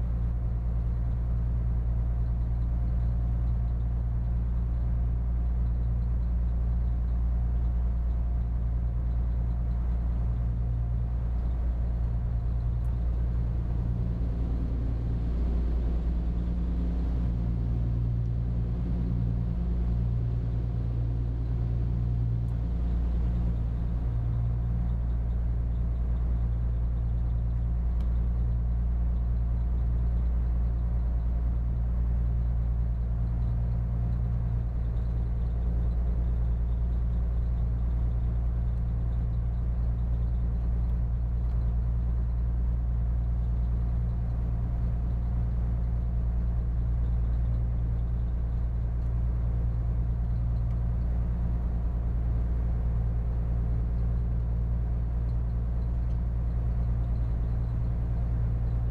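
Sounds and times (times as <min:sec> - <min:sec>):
diesel engine droning: 0:11.1 - 0:30.3.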